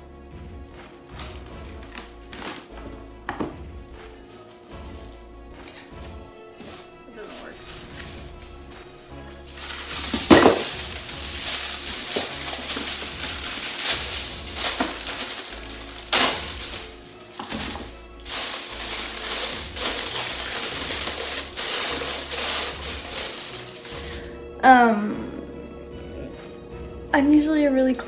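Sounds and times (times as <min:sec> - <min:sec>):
background music: 0:00.0 - 0:28.0
cling wrap ripping: 0:01.1 - 0:02.8, 0:09.3 - 0:24.3
cling wrap crinkling: 0:06.6 - 0:24.3.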